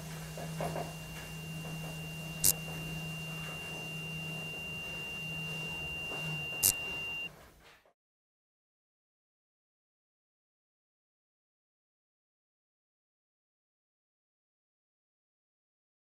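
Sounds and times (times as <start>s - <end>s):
high-pitched sine tone: 0.0s - 7.3s
low electrical hum: 0.0s - 7.6s
sharp clicks: 2.4s - 2.8s, 6.1s - 7.3s.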